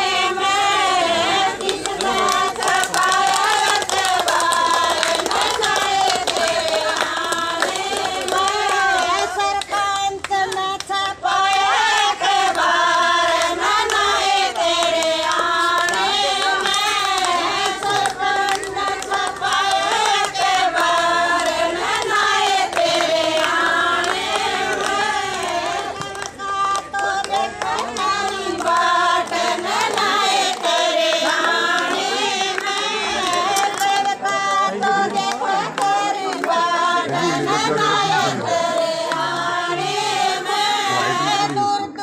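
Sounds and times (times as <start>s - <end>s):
women singing in unison: 0.0s - 42.0s
hand clapping: 1.4s - 41.6s.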